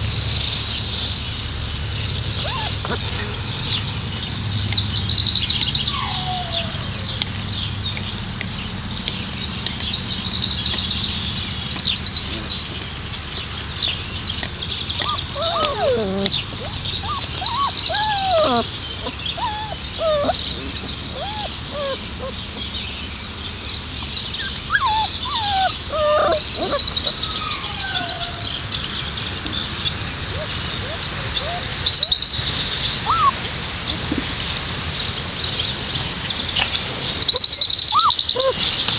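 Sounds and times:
puppies whining and yipping: 2.3s - 4.0s, 5.5s - 7.4s, 14.9s - 22.8s, 24.3s - 29.5s, 30.2s - 34.2s, 37.2s - 38.9s.

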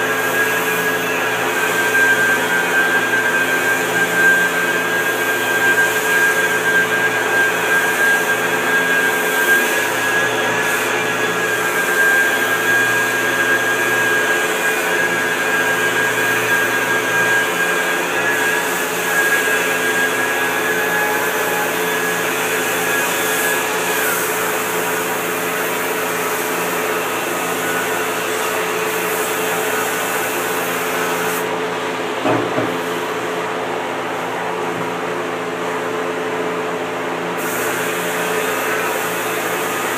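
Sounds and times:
short knock: 32.2s - 32.8s.

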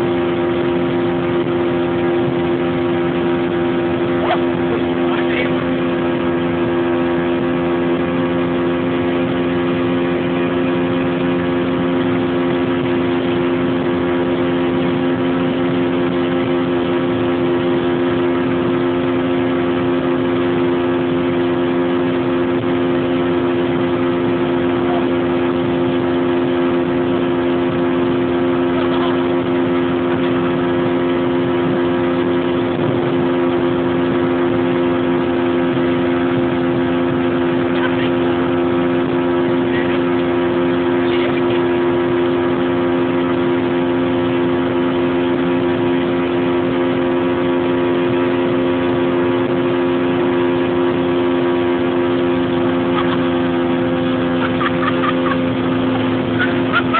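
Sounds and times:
outboard motor running: 0.0s - 56.9s
water rushing: 0.0s - 56.9s.

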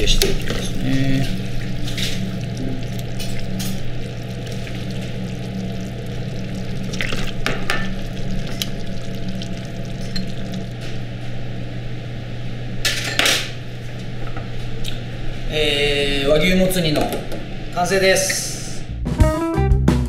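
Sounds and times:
low kitchen hum: 0.0s - 18.9s
ladle scooping stew: 0.2s - 10.9s
metal bowls clattering on counter: 7.0s - 8.6s.

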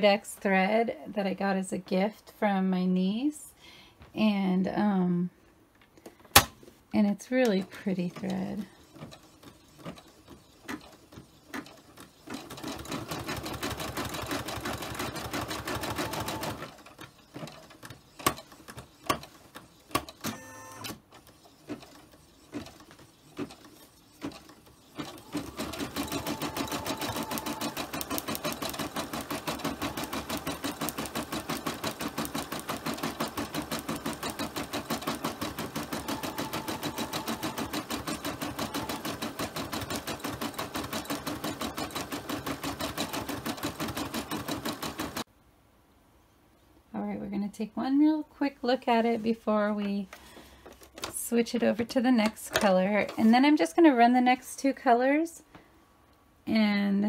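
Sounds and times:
embroidery machine needle rattling: 21.1s - 45.3s.

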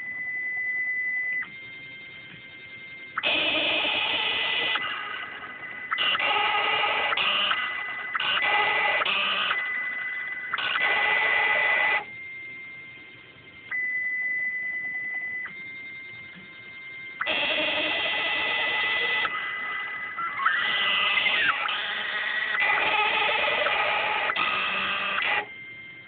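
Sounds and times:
stepper motors whining: 3.2s - 12.1s, 17.1s - 26.0s.

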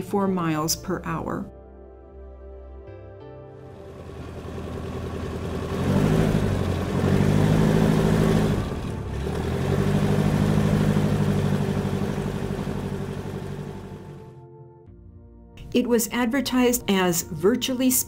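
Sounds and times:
light aircraft engine: 3.7s - 14.3s.

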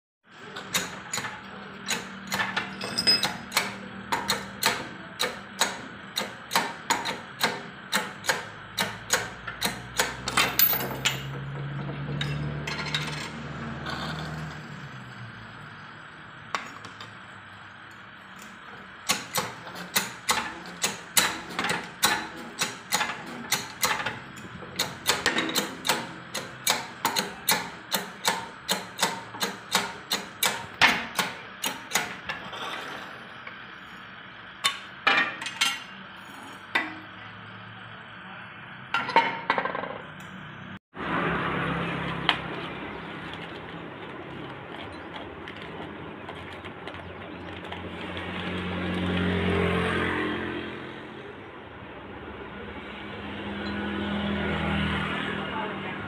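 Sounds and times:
rhythmic mechanical clicking: 18.9s - 32.3s.

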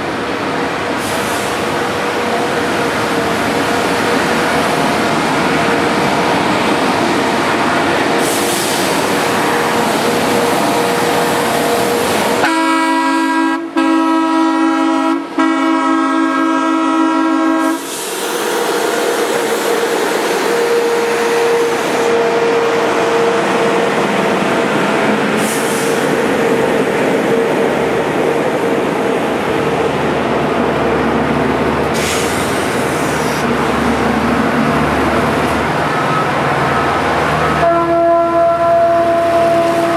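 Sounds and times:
train horn blast: 10.5s - 17.9s, 20.4s - 23.8s, 37.4s - 39.9s.

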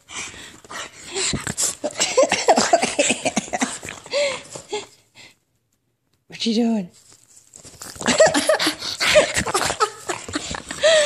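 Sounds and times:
dog noisy breaths: 0.0s - 2.6s, 7.7s - 11.0s.

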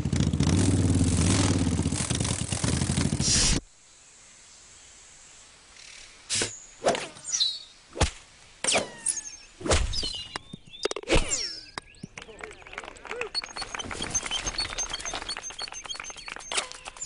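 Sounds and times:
high squeaky chirps: 8.7s - 12.1s, 13.2s - 17.0s.

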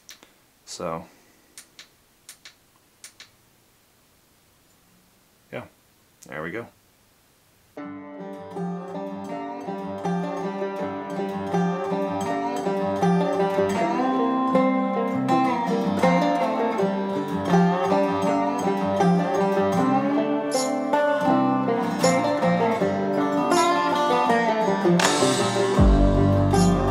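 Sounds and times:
plucked string music: 7.8s - 26.9s.

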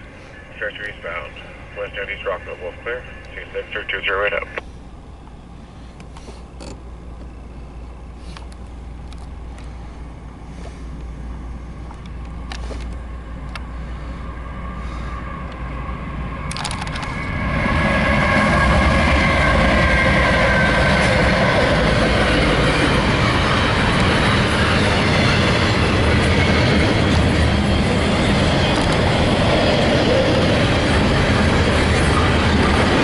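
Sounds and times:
freight train passing: 0.0s - 33.0s
wheel-on-rail noise: 14.9s - 33.0s.

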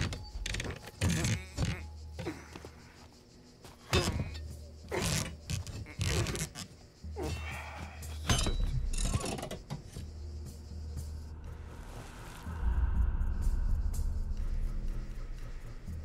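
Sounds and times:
wooden lid creaking and groaning: 0.0s - 1.9s, 3.9s - 6.7s.

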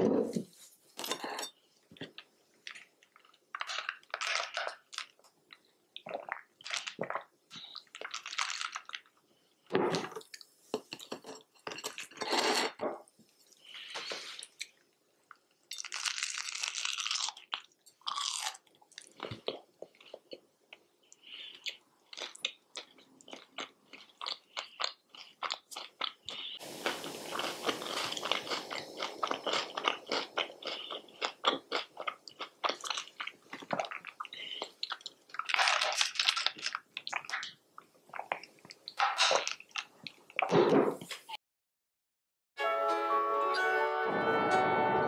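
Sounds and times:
biting and chewing sandwich: 21.6s - 37.4s.

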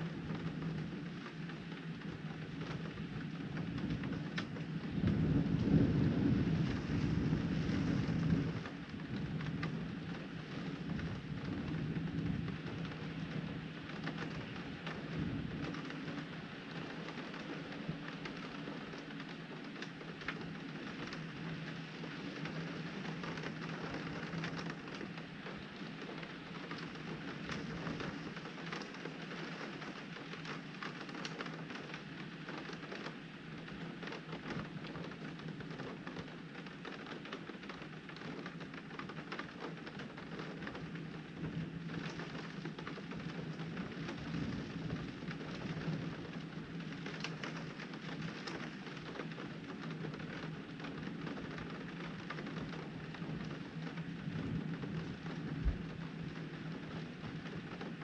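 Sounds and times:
rain on a window: 0.0s - 58.0s
thunder rumbling: 4.8s - 13.5s.

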